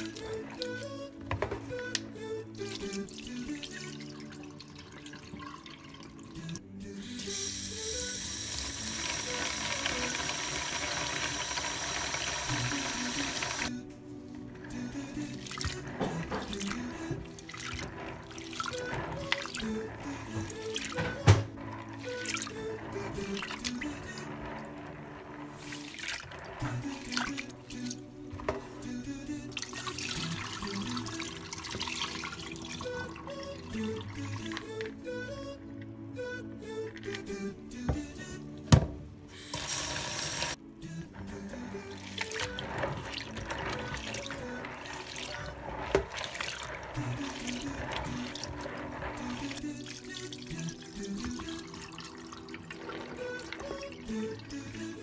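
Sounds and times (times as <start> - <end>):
water pouring: 0.0 - 6.6, 7.2 - 13.7, 14.4 - 35.0, 39.4 - 55.0
background music: 0.0 - 55.0
water sloshing in a bowl: 2.6 - 6.6, 14.6 - 35.0, 41.2 - 55.0.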